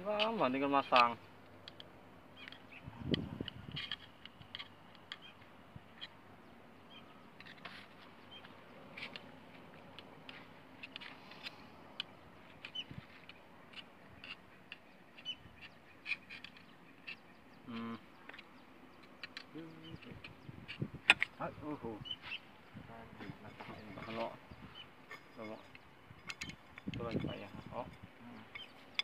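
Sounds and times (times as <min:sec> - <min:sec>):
faint metal clicks and taps: 0:00.9 - 0:05.4, 0:18.2 - 0:20.4.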